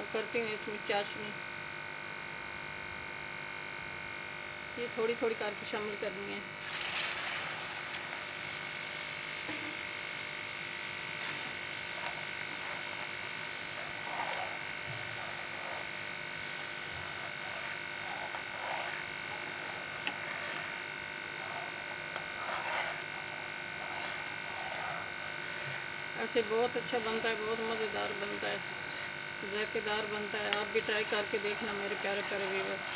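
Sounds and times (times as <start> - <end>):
steady hum: 0.0 - 32.9
syrup bubbling and sizzling: 6.5 - 26.1, 30.4 - 32.9.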